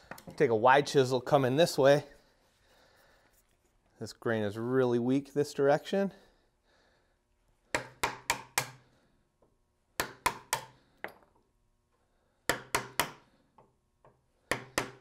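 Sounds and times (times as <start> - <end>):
hammer striking chisel: 7.7 - 8.8, 10.0 - 11.2, 12.5 - 13.2, 14.5 - 15.0.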